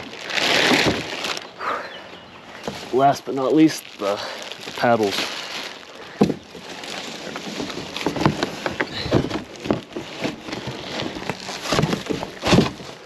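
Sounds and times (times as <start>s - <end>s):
packaging crackling: 0.0s - 1.7s, 2.5s - 13.0s.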